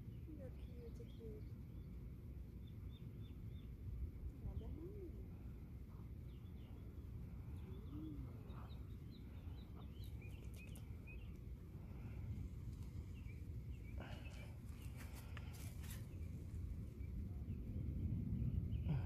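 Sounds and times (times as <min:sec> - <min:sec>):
low background rumble: 0:00.0 - 0:19.0
small birds chirping: 0:00.0 - 0:19.0
low arched coo: 0:07.6 - 0:08.8.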